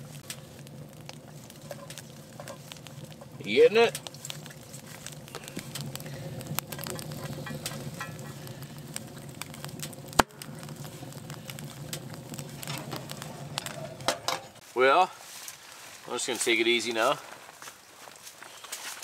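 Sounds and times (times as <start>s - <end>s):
low steady hum: 0.0s - 14.7s
wood fire crackling: 0.0s - 19.0s.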